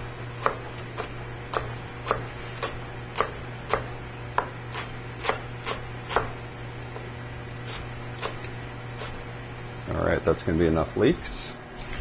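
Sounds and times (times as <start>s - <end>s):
knife chopping on cutting board: 0.4s - 6.4s, 7.6s - 8.4s.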